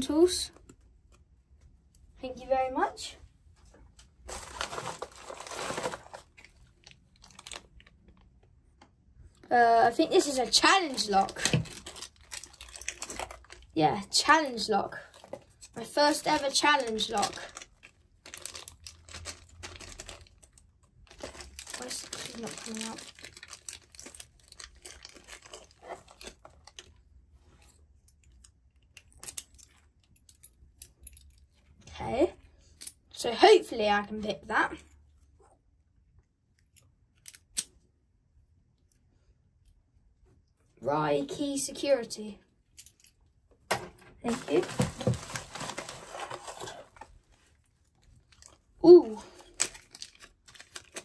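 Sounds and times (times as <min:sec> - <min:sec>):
plastic packaging crinkling: 0:04.2 - 0:08.4, 0:10.1 - 0:13.8, 0:14.9 - 0:27.1, 0:44.2 - 0:51.0.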